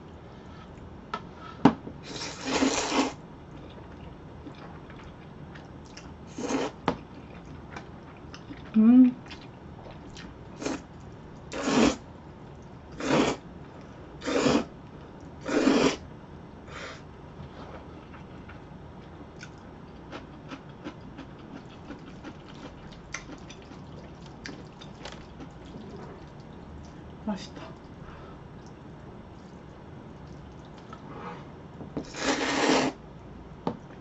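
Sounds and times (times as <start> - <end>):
woman slurping noodles: 2.1 - 3.2, 11.6 - 12.0, 13.0 - 13.4, 14.2 - 14.7, 15.5 - 16.0, 32.1 - 33.0
chewing with clicks and smacks: 3.5 - 6.1, 7.0 - 10.4, 18.1 - 27.1, 30.2 - 31.0.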